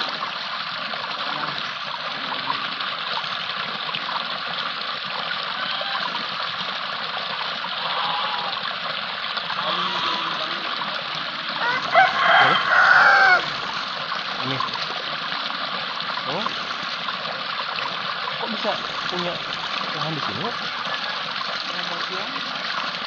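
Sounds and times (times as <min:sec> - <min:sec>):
water running and splashing: 0:00.0 - 0:23.0
vocal sounds: 0:01.1 - 0:02.8, 0:09.5 - 0:13.8, 0:14.4 - 0:14.8, 0:16.2 - 0:16.9.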